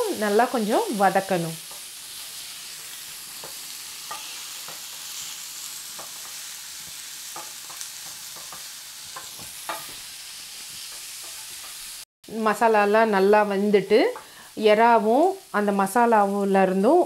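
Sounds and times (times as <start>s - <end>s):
shrimp sizzling in oil: 0.0s - 17.0s
spatula scraping a pan: 1.6s - 12.0s.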